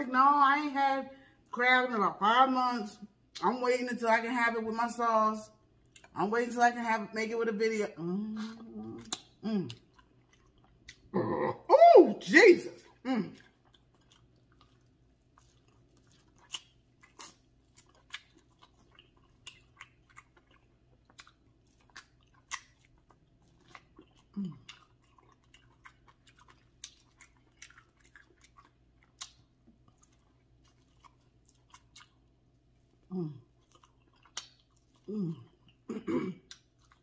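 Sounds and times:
wet chewing and smacking: 5.6s - 6.2s, 8.6s - 11.2s, 12.8s - 37.0s
person humming mm: 35.1s - 36.4s.

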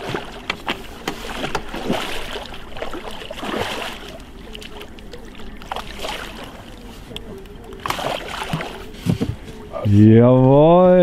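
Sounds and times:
water sloshing against boat: 0.0s - 11.0s.

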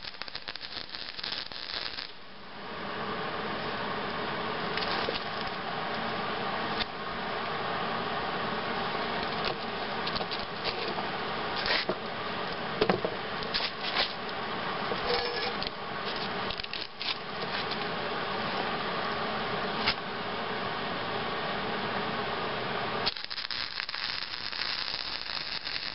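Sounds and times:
welder buzzing hum: 0.0s - 2.4s, 14.8s - 15.7s, 23.0s - 25.9s.

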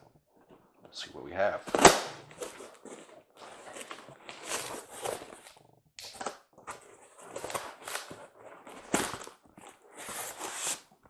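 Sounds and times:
cardboard rustling and scraping: 1.6s - 5.7s, 6.5s - 11.0s.

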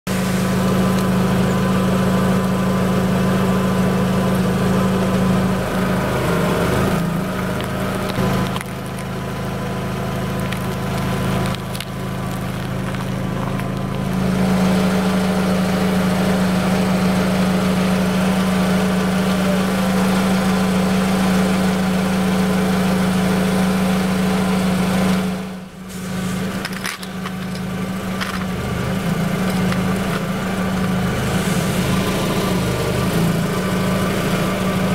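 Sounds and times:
car engine idling: 0.1s - 34.9s
objects crushed under tyre: 7.0s - 14.2s, 26.1s - 31.1s.

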